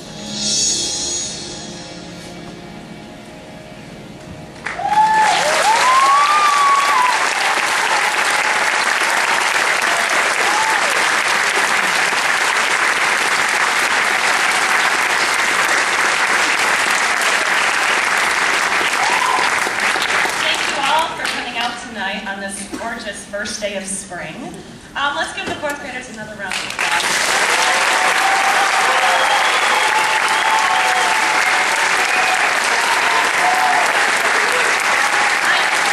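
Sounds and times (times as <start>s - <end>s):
faint music: 0.0s - 6.8s
audience clapping: 4.6s - 21.6s, 26.5s - 35.9s
people whooping: 4.7s - 12.1s, 18.8s - 19.7s, 27.3s - 35.9s.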